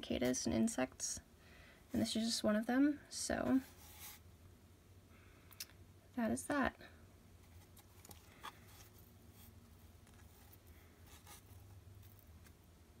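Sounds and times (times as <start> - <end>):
faint clicks and scratchy rustles: 7.4 - 12.7.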